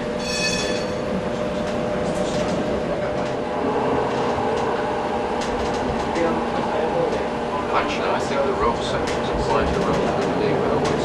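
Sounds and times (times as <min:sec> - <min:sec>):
tram running on track: 0:00.0 - 0:11.0
high-pitched tone: 0:00.2 - 0:01.1.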